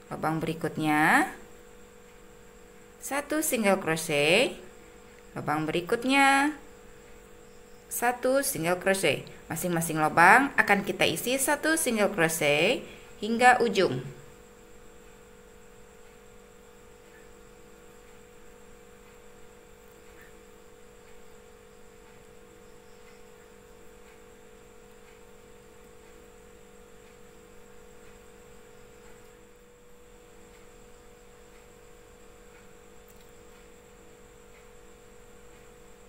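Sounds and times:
faint electrical hum: 0.0 - 36.0
very faint ticks: 14.8 - 36.0.

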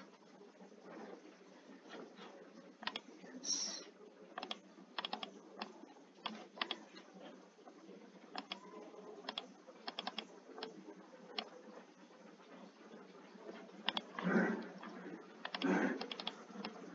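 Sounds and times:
computer keyboard typing: 2.8 - 3.0, 4.4 - 6.8, 8.3 - 8.7, 9.3 - 10.8, 13.8 - 16.8.

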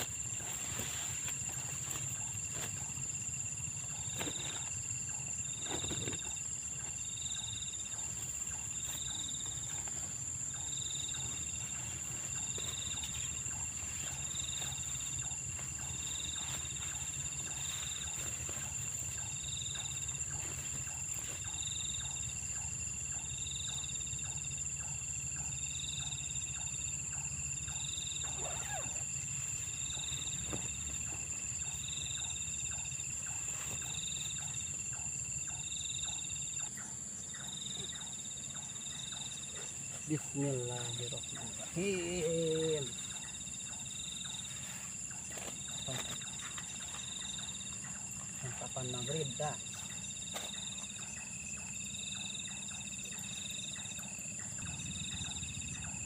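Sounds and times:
pulsing animal call: 0.0 - 37.1, 51.0 - 56.0
high insect trill: 0.0 - 56.0.

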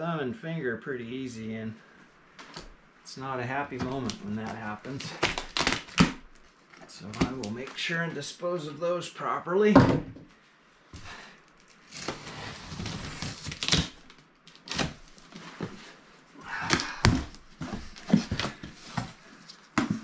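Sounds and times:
cardboard rustling and scraping: 3.7 - 7.9, 11.0 - 20.0.

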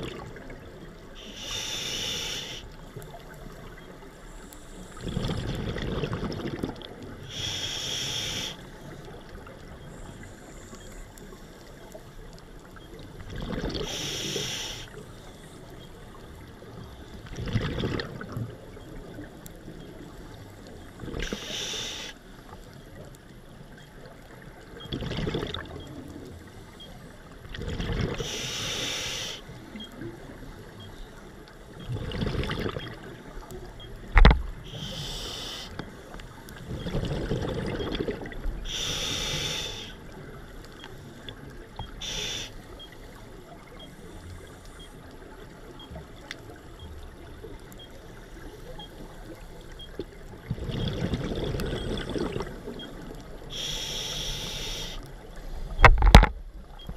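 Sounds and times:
hissing regulator inhalations: 1.2 - 2.8, 7.3 - 8.9, 13.8 - 15.6, 21.2 - 22.2, 28.2 - 29.8, 34.6 - 36.1, 38.6 - 40.1, 40.8 - 42.9, 53.5 - 55.8
bubbling exhalations: 24.9 - 25.7, 31.9 - 32.9, 36.8 - 38.3.

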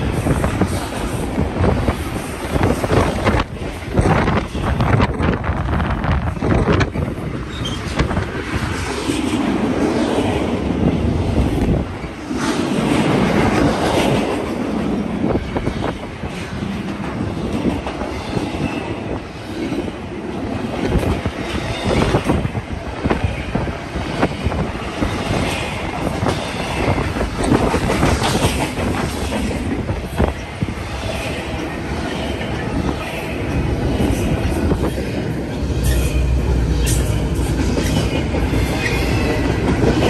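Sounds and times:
steel wheels rumbling: 0.0 - 40.0.

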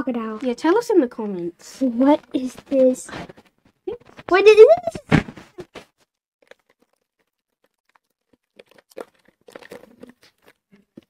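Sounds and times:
candies crunching while eaten: 6.4 - 11.0.

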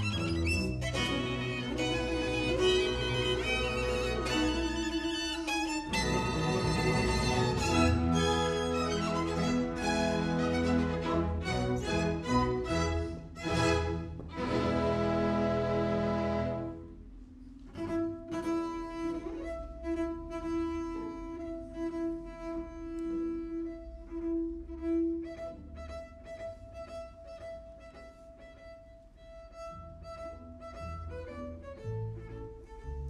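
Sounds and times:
bowed double bass solo: 0.0 - 17.0.

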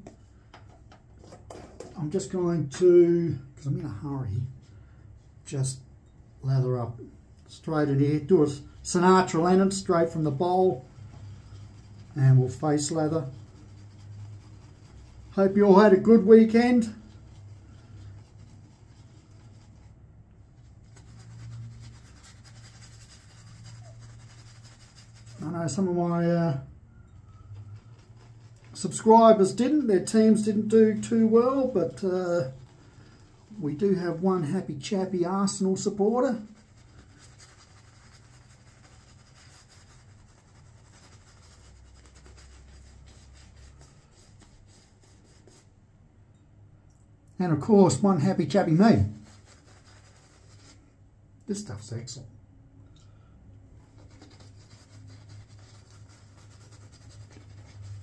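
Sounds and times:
steady low hum: 1.9 - 58.0
shaving brush scratching lather: 8.9 - 26.2, 27.3 - 45.7, 47.9 - 50.8, 53.9 - 58.0.

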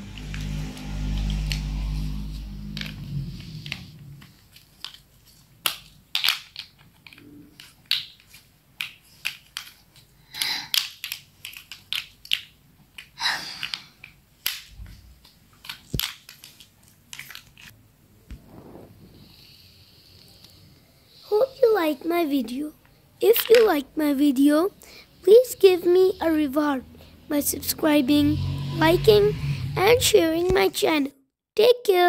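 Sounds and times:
plastic building blocks clicking: 4.5 - 17.7, 23.3 - 23.8.

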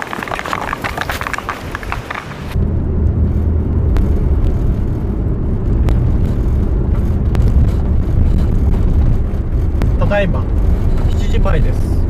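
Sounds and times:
van engine rumble from inside: 2.4 - 12.0.

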